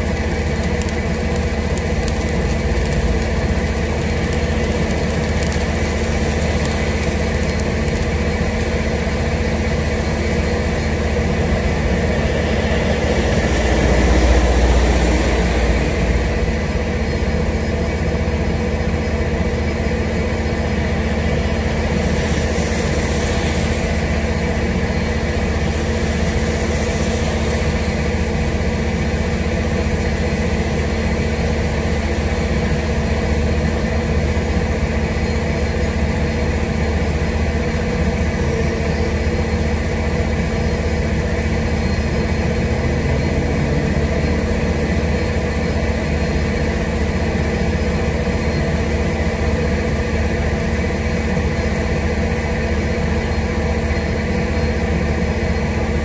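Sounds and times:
tyres hissing on wet road: 0.0s - 18.6s, 19.4s - 56.0s
constant low hum: 0.0s - 56.0s
heavy rain and wind: 41.1s - 48.1s.

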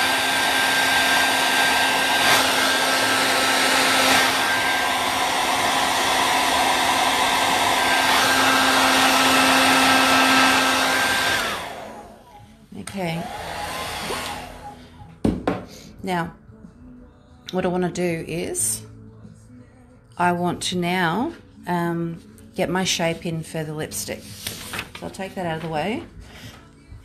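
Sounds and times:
hair dryer blowing: 0.0s - 15.1s.

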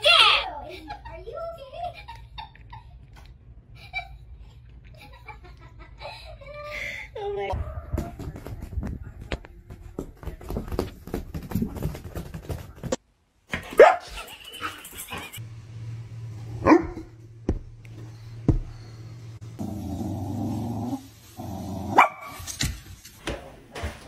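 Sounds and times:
dog barking: 13.7s - 14.2s, 16.6s - 17.1s, 21.9s - 22.4s.

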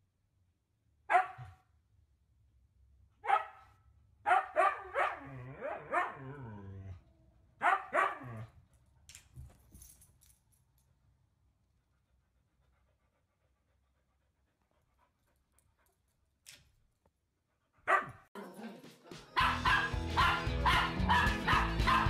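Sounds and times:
dog barking and howling: 3.2s - 7.0s, 7.6s - 8.5s, 17.8s - 18.7s, 19.4s - 22.0s.

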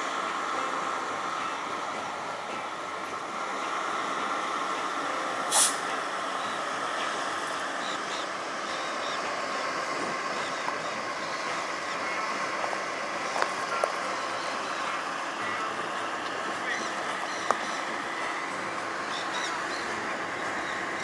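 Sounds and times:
street traffic noise: 0.0s - 21.0s
short sharp hiss: 5.5s - 5.9s.

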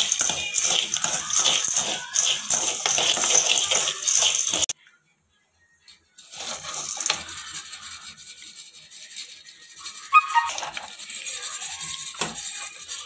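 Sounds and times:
strainer scraping chickpeas in salt: 0.0s - 4.7s, 6.2s - 13.0s
pet animal whining cry: 10.1s - 10.7s.

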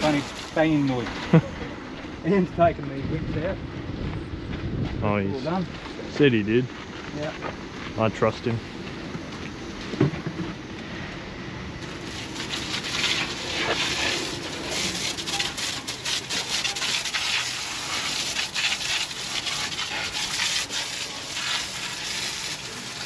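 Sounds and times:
hose water spraying on metal: 0.0s - 1.5s, 11.8s - 23.0s.

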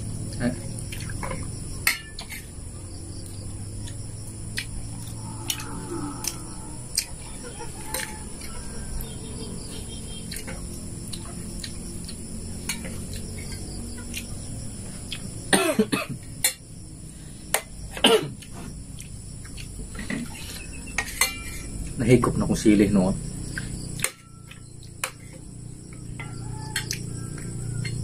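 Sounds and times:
man coughing: 15.5s - 16.2s, 18.0s - 18.4s
spoons clinking on plates: 21.0s - 21.7s.

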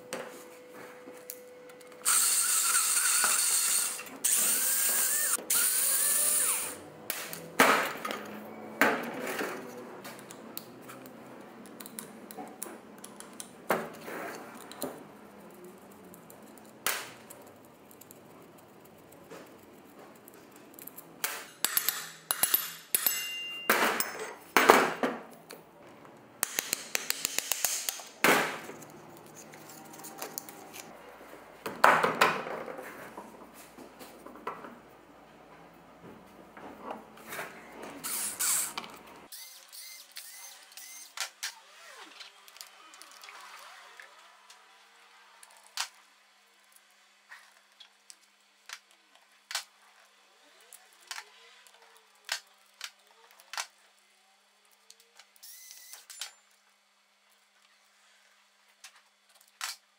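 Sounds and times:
handheld power tool running: 2.0s - 6.8s, 38.0s - 42.4s.

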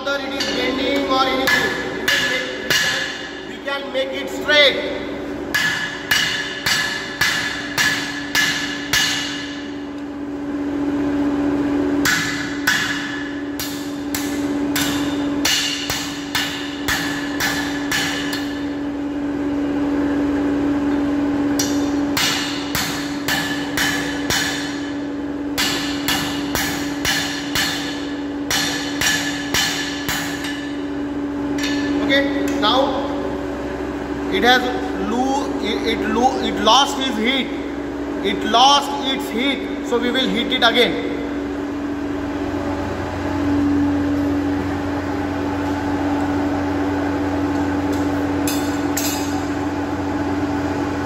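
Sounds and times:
steady low hum: 0.0s - 51.0s
hammer beating metal on anvil: 0.3s - 3.4s, 5.5s - 9.7s, 12.0s - 18.8s, 21.6s - 25.0s, 25.6s - 30.9s, 31.6s - 32.6s, 47.9s - 49.6s.

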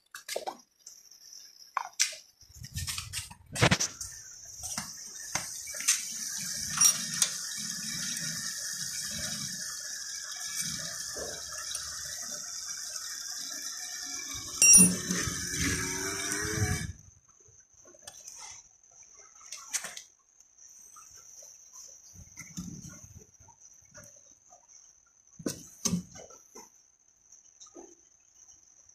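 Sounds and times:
small electric pump running: 4.7s - 17.0s.

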